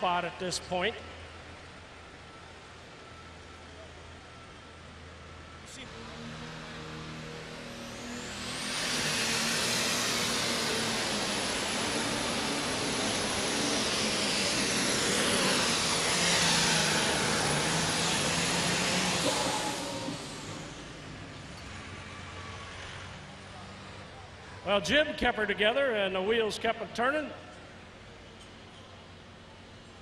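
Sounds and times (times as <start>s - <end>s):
diesel tractor engine at full power: 0.0s - 26.6s
turbocharger whistle: 5.8s - 21.2s.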